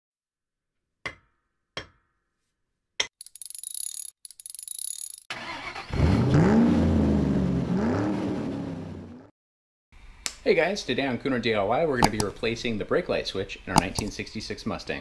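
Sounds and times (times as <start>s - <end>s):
starter motor cranking: 5.3s - 6.1s
car engine revving: 5.4s - 9.3s.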